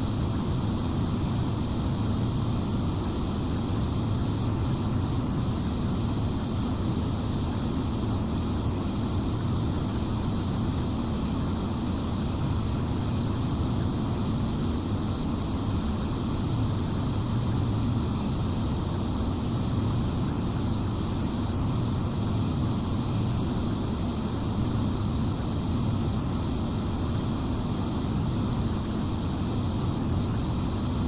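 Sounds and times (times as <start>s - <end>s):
cooling blowers rushing air: 0.0s - 31.0s.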